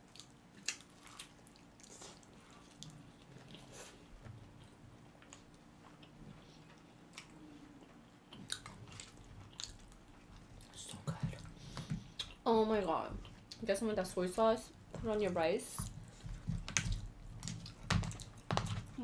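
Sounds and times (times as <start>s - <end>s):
wet chewing mouth sounds: 0.0s - 12.4s.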